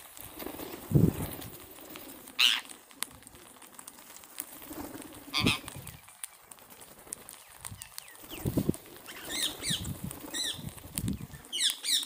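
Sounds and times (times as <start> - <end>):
beaks pecking and cracking seed: 0.0 - 12.0
flutter of wings: 0.0 - 12.0
parakeet calls: 2.4 - 2.7, 5.3 - 5.8, 9.1 - 10.6, 11.5 - 12.0.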